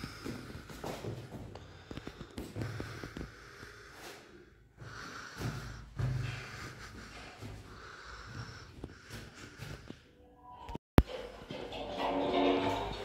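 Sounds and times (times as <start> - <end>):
person breathing heavily: 0.0 - 10.3.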